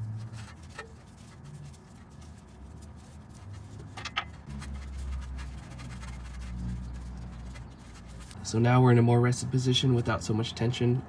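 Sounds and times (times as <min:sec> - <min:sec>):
gloved hands handling wiring: 0:00.0 - 0:08.4.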